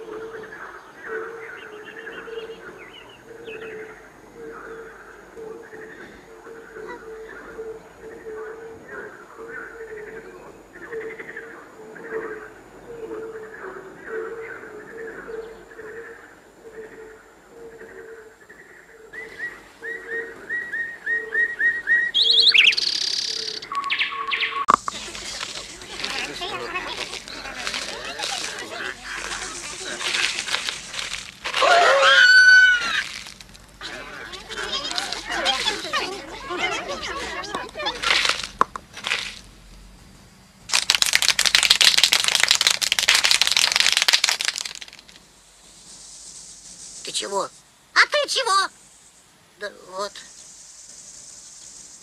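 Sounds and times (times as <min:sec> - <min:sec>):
birds chirping and trilling: 0:00.0 - 0:38.1
rapid dry rattling clatter: 0:40.7 - 0:45.2.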